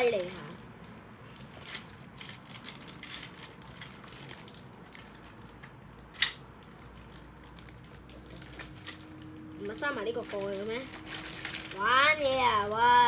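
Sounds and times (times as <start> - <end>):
packaging crinkling and clicking: 0.2 - 11.9
sharp plastic snap: 6.1 - 6.5.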